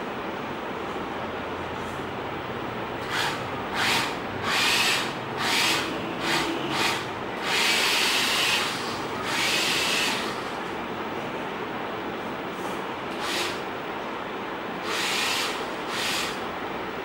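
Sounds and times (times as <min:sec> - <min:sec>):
steady background hum: 0:00.0 - 0:17.0
small electric motors whirring: 0:14.9 - 0:16.4.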